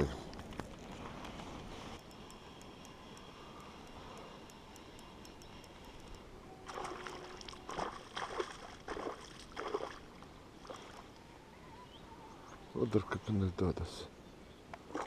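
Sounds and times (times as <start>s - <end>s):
fishing reel ticking: 0.8s - 6.4s.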